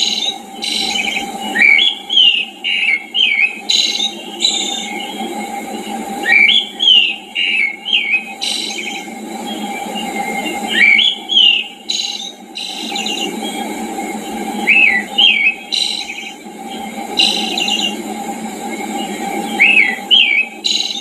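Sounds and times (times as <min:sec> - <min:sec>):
bird whistled swooping phrases: 0:00.0 - 0:05.2, 0:06.2 - 0:09.1, 0:10.3 - 0:13.3, 0:14.6 - 0:16.4, 0:19.5 - 0:21.0
buzzy bird trills: 0:00.0 - 0:21.0.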